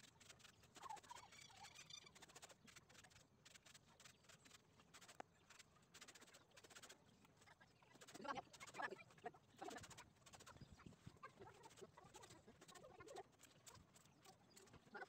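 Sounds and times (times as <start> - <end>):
faint chicken clucking: 0.0 - 3.2, 5.1 - 15.0
faint high bird chirp: 0.7 - 2.6.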